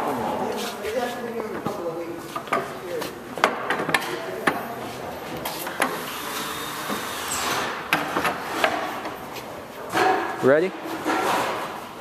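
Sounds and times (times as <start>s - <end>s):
wood and tools knocking: 3.4s - 4.6s.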